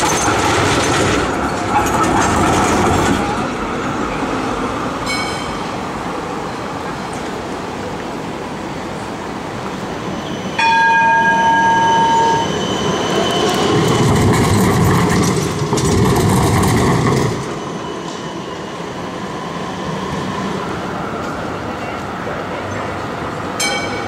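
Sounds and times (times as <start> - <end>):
tram wheels clacking over rails: 0.0 - 6.2, 10.6 - 18.4
tram warning gong: 5.0 - 5.9, 10.6 - 13.6, 23.6 - 24.0.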